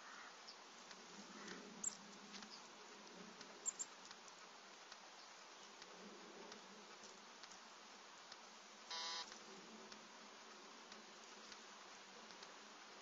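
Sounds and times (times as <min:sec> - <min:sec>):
faint hiss: 0:00.0 - 0:13.0
light ticks: 0:00.8 - 0:08.6, 0:09.2 - 0:12.6
short buzz: 0:08.9 - 0:09.3.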